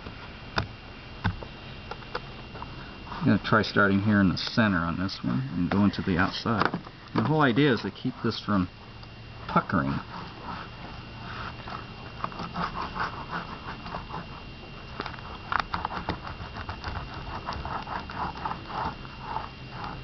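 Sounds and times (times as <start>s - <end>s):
roller scraping strokes: 9.9s - 14.5s, 15.8s - 20.0s.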